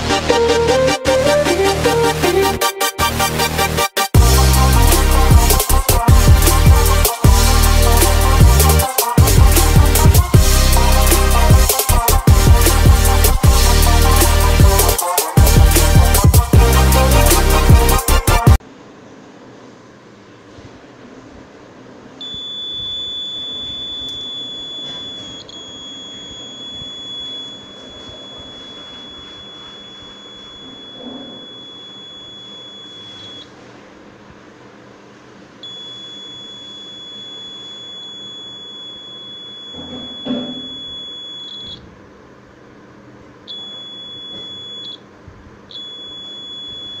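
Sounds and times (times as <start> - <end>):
piezo buzzer high-pitched tone: 2.0 - 18.6, 22.2 - 33.5, 35.6 - 41.8, 43.5 - 45.0, 45.7 - 47.0.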